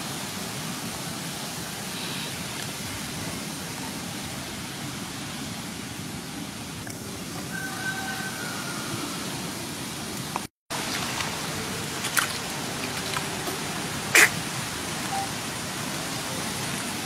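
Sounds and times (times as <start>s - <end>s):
steady noisy hiss: 0.0s - 17.0s
water splashing and sloshing: 10.0s - 17.0s.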